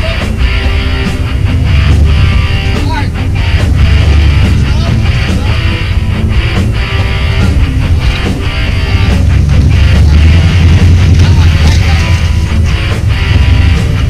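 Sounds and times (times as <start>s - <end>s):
loud rock music: 0.0s - 14.0s.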